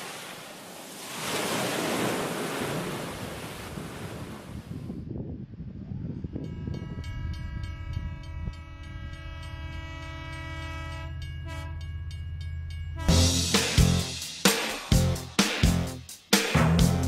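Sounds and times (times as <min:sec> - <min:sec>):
passing train rumble: 0:06.2 - 0:14.1
train horn blast: 0:07.1 - 0:11.9, 0:13.0 - 0:13.4
music with strong beat: 0:13.1 - 0:17.0.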